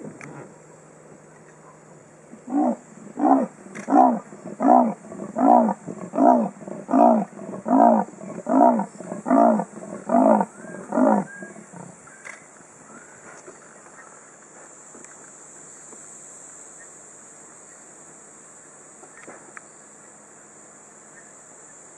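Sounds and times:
leopard sawing call: 2.3 - 12.0.

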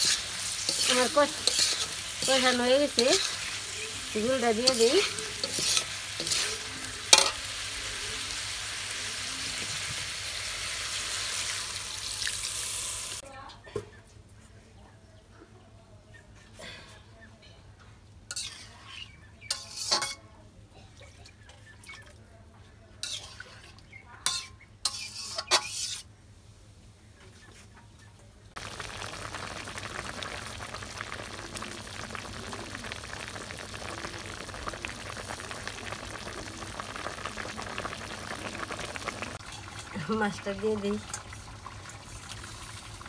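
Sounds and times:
curry sizzling in wok: 0.0 - 13.2, 18.3 - 20.2, 23.0 - 26.1, 28.5 - 43.0
metal spoon clinking on wok: 24.3 - 25.8.

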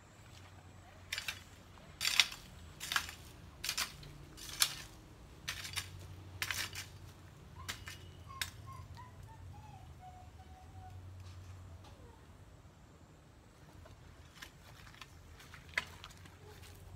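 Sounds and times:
hoe chopping and scraping soil: 1.1 - 8.6.

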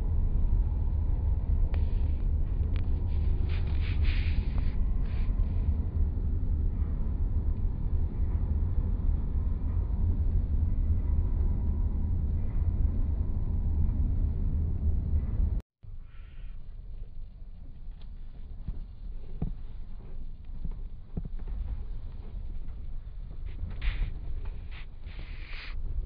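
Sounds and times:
road and wind noise inside car: 0.0 - 15.6.

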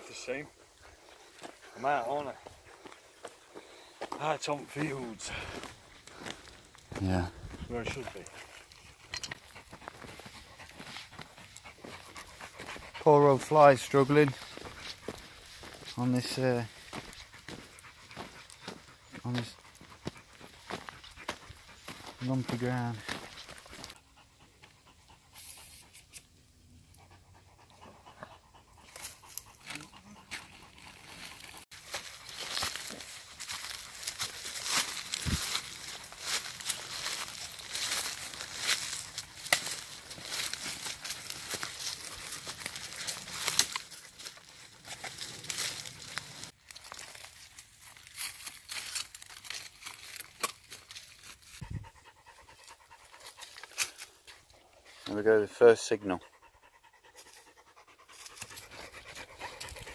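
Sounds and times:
dog panting faintly: 0.0 - 46.5, 51.2 - 59.9
footsteps through dry leaves: 13.4 - 24.0, 30.3 - 51.6.

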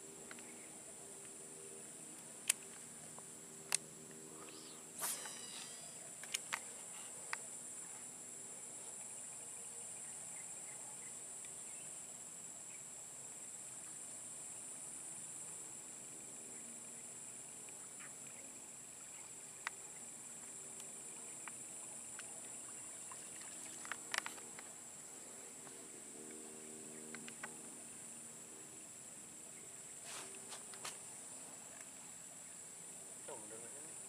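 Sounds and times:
insects droning: 0.0 - 34.0
fishing rod swishing: 4.5 - 5.9.

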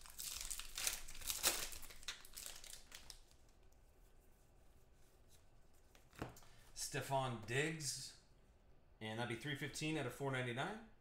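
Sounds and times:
foil wrapper crinkling and tearing: 0.0 - 3.4.

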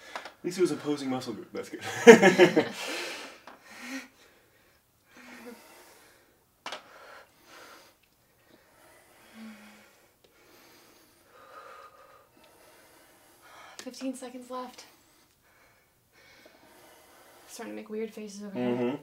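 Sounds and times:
people breathing with effort: 2.7 - 13.8, 14.9 - 17.6.

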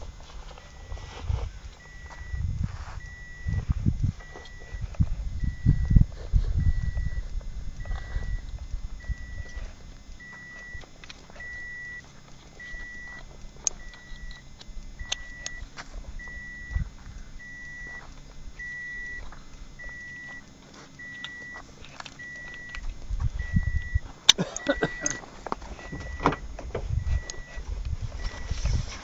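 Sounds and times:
car warning chime beeping: 0.6 - 1.0, 1.8 - 27.6, 28.2 - 28.6.

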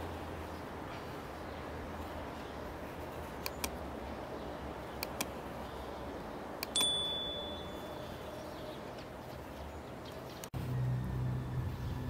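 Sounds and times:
mouse clicks: 3.4 - 3.8, 5.0 - 5.4, 6.6 - 6.8
bell ding: 6.8 - 8.4.

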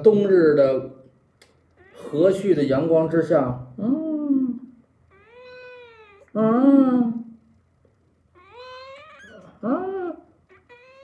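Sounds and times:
cat meowing: 1.8 - 2.2, 5.1 - 6.4, 8.3 - 9.6, 10.4 - 11.0.

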